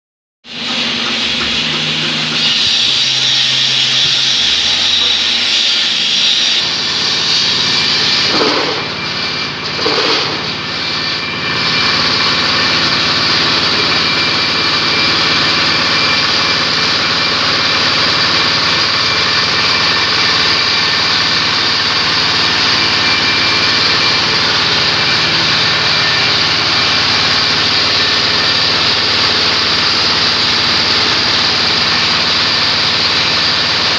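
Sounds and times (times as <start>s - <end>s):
diesel engine running: 0.5s - 33.9s.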